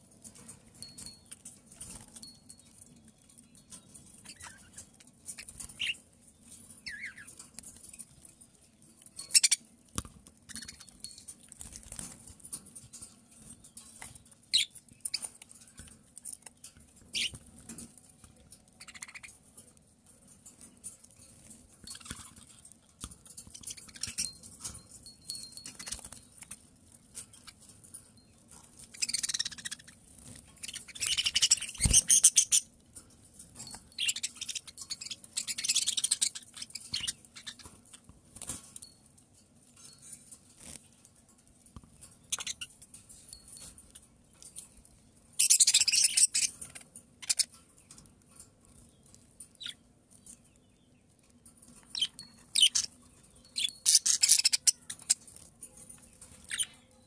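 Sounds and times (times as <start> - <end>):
budgerigars chattering and warbling: 9.3 - 9.6, 18.8 - 19.4, 28.9 - 30.0, 30.6 - 32.7, 34.0 - 37.8, 45.4 - 47.6, 52.0 - 52.9, 53.5 - 55.2, 56.4 - 56.8.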